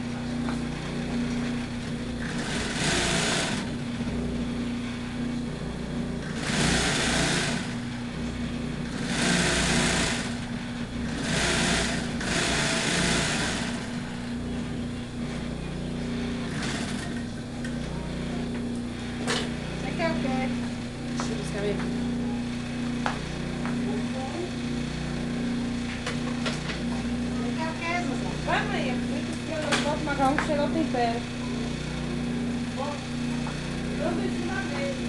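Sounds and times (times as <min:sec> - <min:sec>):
sewing machine motor humming: 0:00.0 - 0:35.0
sewing machine stitching: 0:01.4 - 0:03.8, 0:06.2 - 0:07.8, 0:08.9 - 0:10.4, 0:11.1 - 0:14.0, 0:16.5 - 0:17.3.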